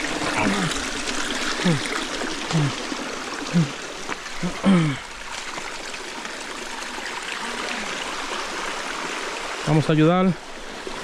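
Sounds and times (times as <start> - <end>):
creek water over waterfall: 0.0 - 11.0
low vocal sounds: 0.2 - 0.9, 1.6 - 2.8, 3.5 - 3.8.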